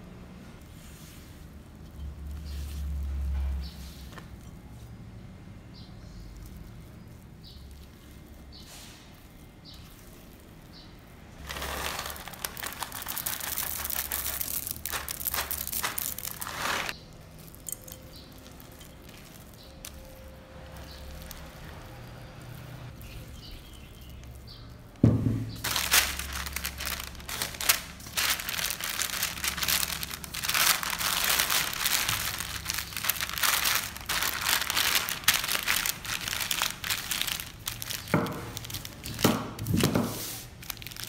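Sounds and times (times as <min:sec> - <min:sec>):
spatula scraping: 0:06.8 - 0:24.7
chocolate chips poured into bowl: 0:11.4 - 0:22.7, 0:25.6 - 0:39.3.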